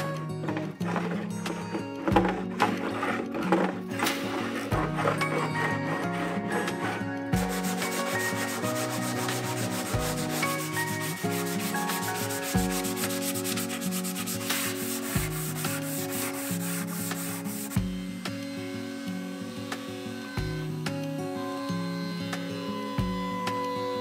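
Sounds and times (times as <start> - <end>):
sandpaper scratching on wood: 2.5 - 17.8.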